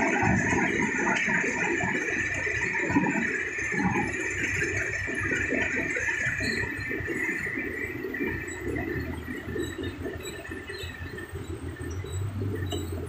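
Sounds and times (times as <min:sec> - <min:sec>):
diesel engine rumbling: 0:00.0 - 0:13.0
hydraulic whine: 0:05.1 - 0:13.0.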